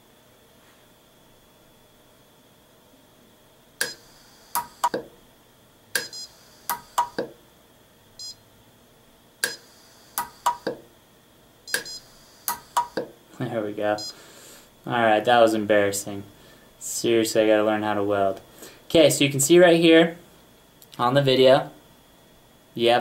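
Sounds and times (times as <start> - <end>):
arc welder snaps: 3.8 - 5.0, 6.7 - 7.3, 9.4 - 9.6, 10.2 - 10.8, 11.7 - 13.1.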